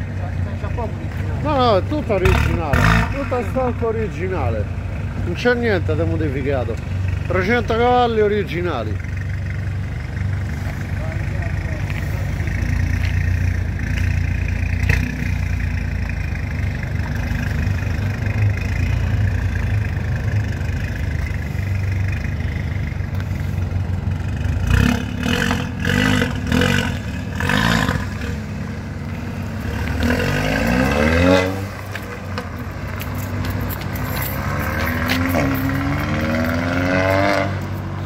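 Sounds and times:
car engine idling: 0:00.0 - 0:36.2
engine revving: 0:01.4 - 0:38.0
car accelerating away: 0:24.2 - 0:38.0.

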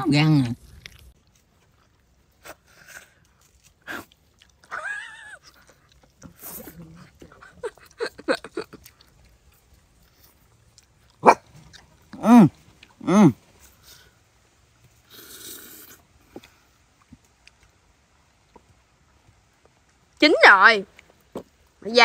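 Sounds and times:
chewing on chicken bone: 0:00.3 - 0:12.2
dog whining: 0:04.6 - 0:05.8.

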